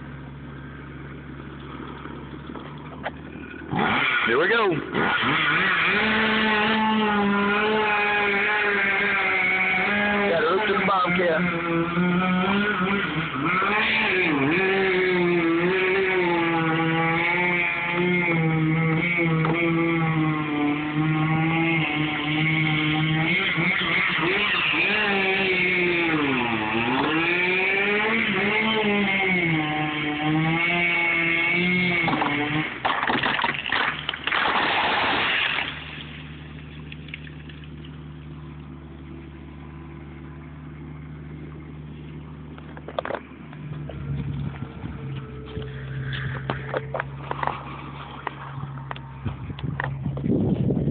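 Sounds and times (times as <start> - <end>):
loader engine idling: 0.0 - 4.0, 35.9 - 50.8
loader engine at high revs: 0.0 - 50.9
tree crashing down: 30.7 - 37.7.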